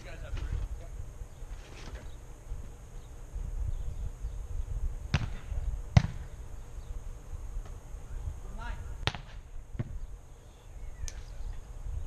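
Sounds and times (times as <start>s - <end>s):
volleyball slaps: 5.1s - 6.3s, 9.0s - 9.9s.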